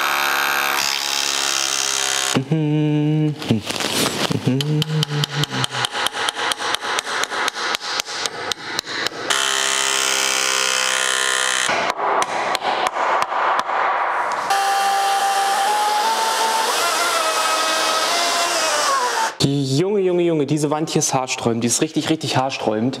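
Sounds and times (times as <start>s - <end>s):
power tool motor whine: 0.0s - 2.4s, 9.3s - 11.7s, 14.5s - 19.4s.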